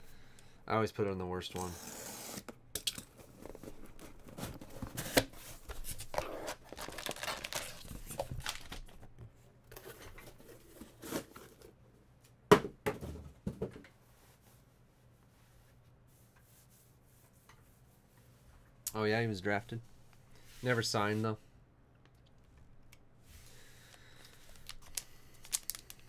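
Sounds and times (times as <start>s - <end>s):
packaging tearing and crinkling: 3.6s - 9.0s, 24.2s - 26.0s.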